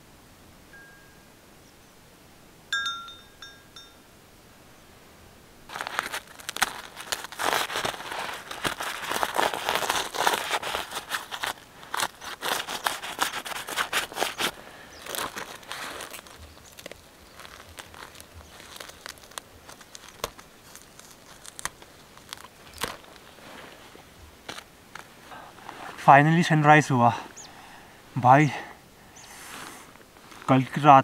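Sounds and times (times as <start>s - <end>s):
ice crackling off tent fabric: 5.7s - 28.4s, 29.2s - 31.0s
bird chirping: 11.3s - 19.2s, 27.1s - 27.7s, 29.0s - 29.4s.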